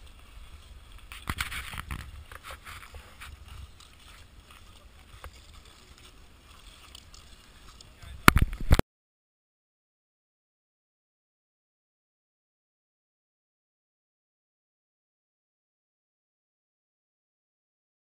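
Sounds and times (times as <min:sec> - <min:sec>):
wind rumbling on microphone: 0:00.0 - 0:08.8
camera handling noise: 0:01.1 - 0:03.3.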